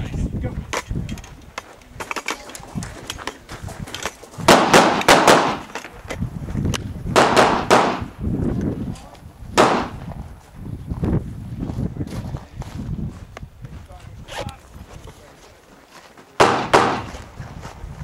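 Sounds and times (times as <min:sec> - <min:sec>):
gunshots with echo: 0:04.5 - 0:05.7, 0:07.2 - 0:08.2, 0:09.6 - 0:10.0, 0:16.4 - 0:17.2.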